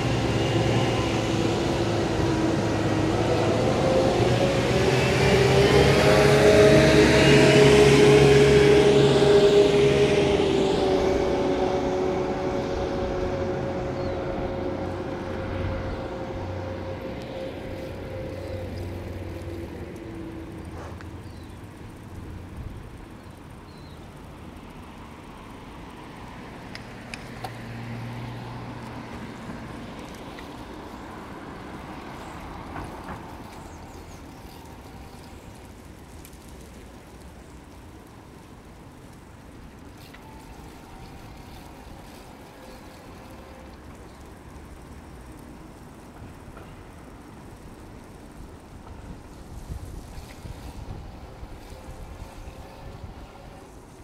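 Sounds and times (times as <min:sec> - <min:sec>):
vehicle passing by: 0:00.0 - 0:37.8
street background noise: 0:00.0 - 0:54.0.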